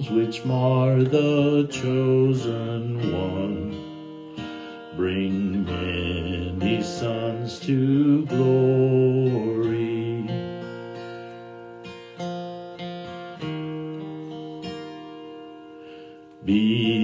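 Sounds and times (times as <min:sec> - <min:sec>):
man singing: 0:00.0 - 0:10.8, 0:16.4 - 0:17.0
strummed acoustic guitar: 0:00.0 - 0:17.0.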